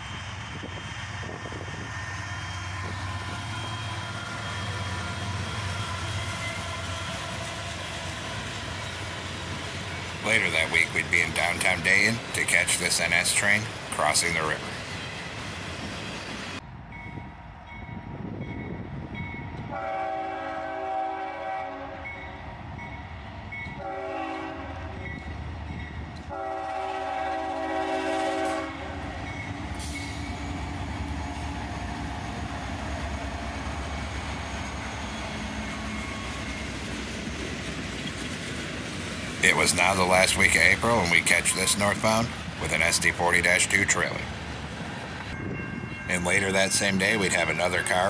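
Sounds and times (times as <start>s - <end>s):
train rumbling by: 0.0s - 48.0s
locomotive air horn blasts: 19.7s - 22.1s, 23.8s - 25.0s, 26.3s - 29.2s.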